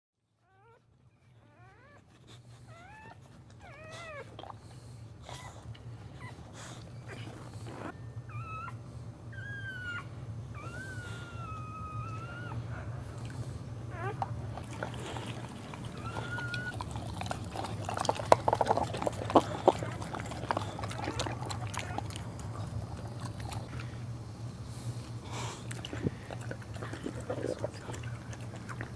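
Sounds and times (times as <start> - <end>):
steady low hum: 0.3 - 28.9
dog whining and whimpering: 0.4 - 4.6, 5.2 - 13.2, 13.8 - 24.0.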